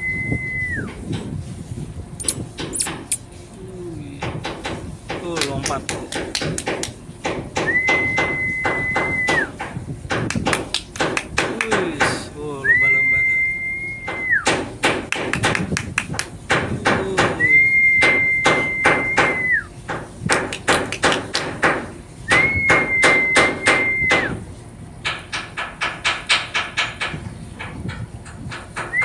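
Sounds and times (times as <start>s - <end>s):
high steady whistle: 0.0s - 1.0s, 7.6s - 9.5s, 12.6s - 14.5s, 17.4s - 19.7s, 22.3s - 24.4s
sharp irregular taps: 4.2s - 12.2s, 14.1s - 17.4s, 18.0s - 21.9s.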